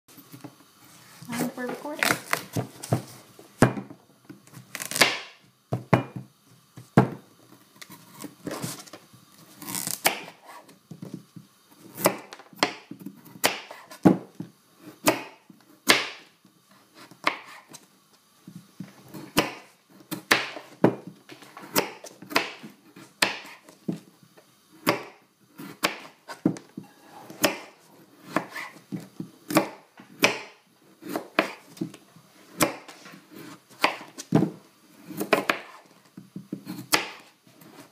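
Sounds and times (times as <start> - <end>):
knife slicing squash skin: 27.0 - 28.8, 29.5 - 31.8, 32.5 - 34.2.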